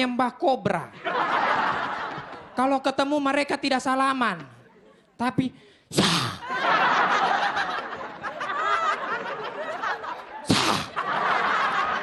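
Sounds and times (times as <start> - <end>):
audience laughing: 1.0 - 2.6, 6.3 - 12.0
person hissing into microphone: 5.9 - 6.4, 10.5 - 10.9.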